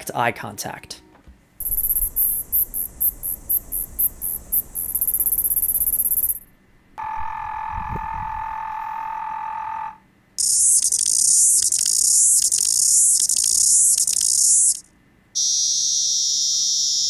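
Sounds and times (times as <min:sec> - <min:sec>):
high-pitched cicada song: 0:01.6 - 0:08.6, 0:10.4 - 0:17.0
low cicada hum: 0:01.6 - 0:17.0.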